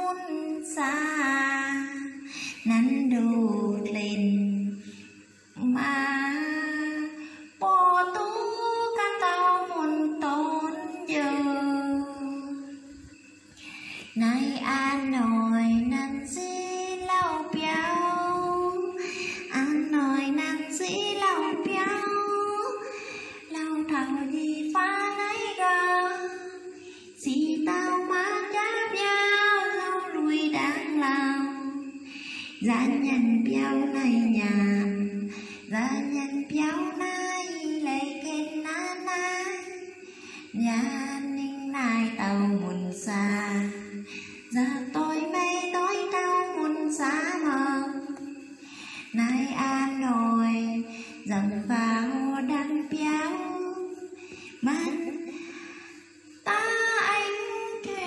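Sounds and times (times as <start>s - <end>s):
woman singing: 0.0s - 58.0s
woman breathing: 2.2s - 2.6s, 12.9s - 14.2s, 19.0s - 19.5s, 22.8s - 23.5s, 31.8s - 32.6s, 40.0s - 40.5s, 43.9s - 44.5s, 48.3s - 49.2s, 54.1s - 54.6s, 55.3s - 56.4s.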